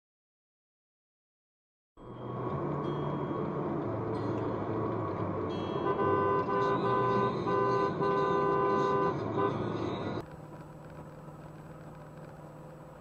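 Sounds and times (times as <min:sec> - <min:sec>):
highway road noise: 0:02.0 - 0:13.0
car horn blaring: 0:05.6 - 0:10.2.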